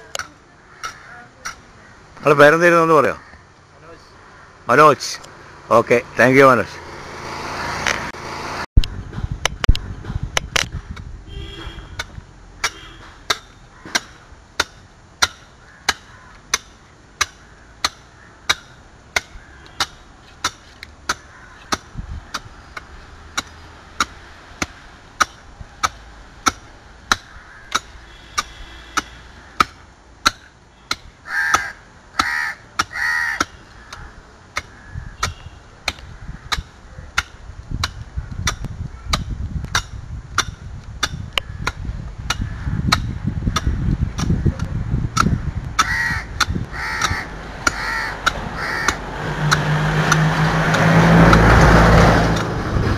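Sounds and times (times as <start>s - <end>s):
crow cawing: 0.6s - 2.0s, 3.1s - 3.5s, 4.1s - 4.7s, 15.6s - 16.5s, 21.1s - 21.8s, 27.2s - 29.7s, 31.2s - 35.5s, 45.8s - 49.0s.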